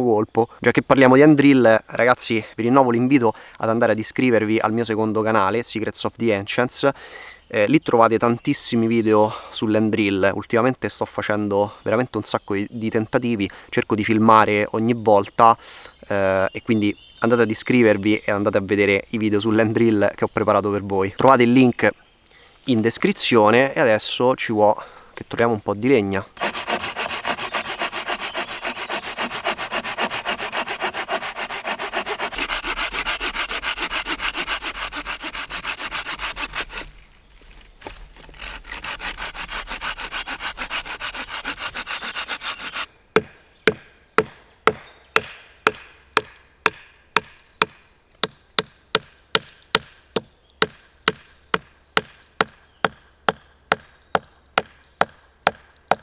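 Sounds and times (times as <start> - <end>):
saw cutting branch: 26.3 - 43.3.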